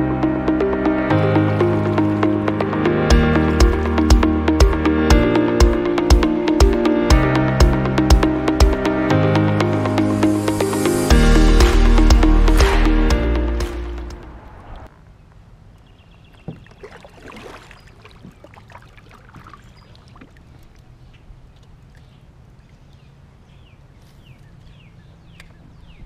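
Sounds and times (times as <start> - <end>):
paddle splashing water: 1.4 - 4.8, 16.3 - 22.1
bird chirping: 15.2 - 16.8, 21.9 - 26.0.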